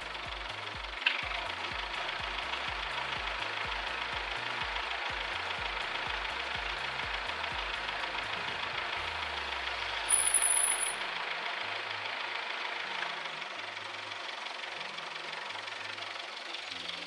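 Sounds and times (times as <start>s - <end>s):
car engine idling with clatter: 0.0s - 17.0s
shrill high-pitched squeak: 10.1s - 11.0s.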